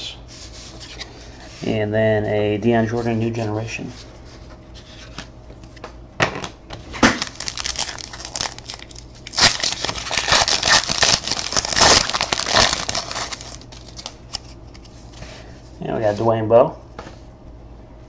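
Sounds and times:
card pack wrapper crinkling and tearing: 7.0s - 14.9s.

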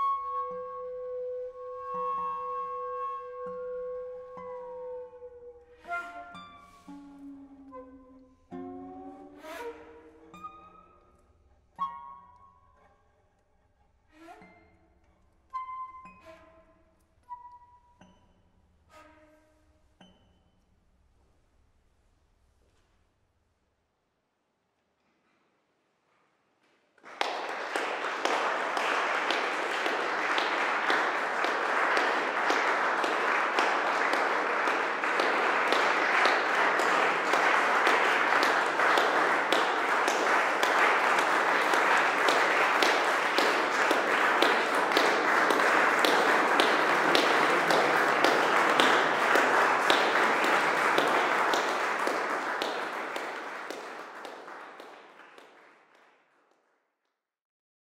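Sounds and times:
audience applauding: 27.0s - 56.6s.

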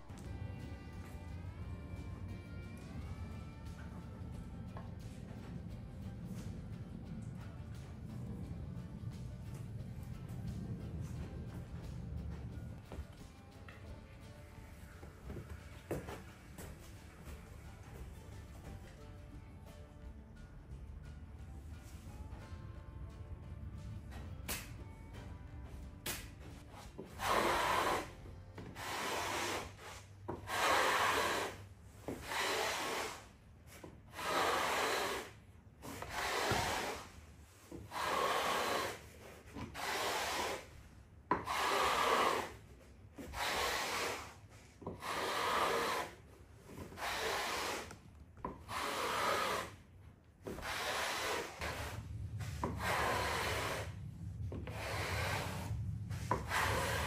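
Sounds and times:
tool scraping wood flooring: 26.1s - 57.0s.

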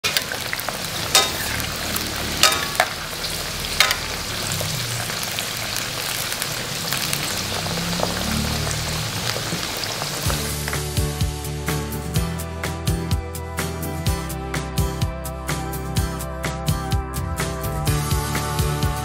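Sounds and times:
spatula clanking against wok: 0.0s - 4.2s
beans sizzling in hot oil: 0.0s - 11.4s.

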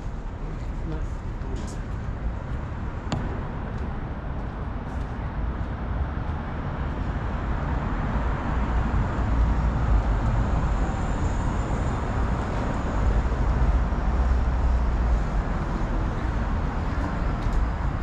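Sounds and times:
distant traffic rumble: 0.0s - 18.0s.

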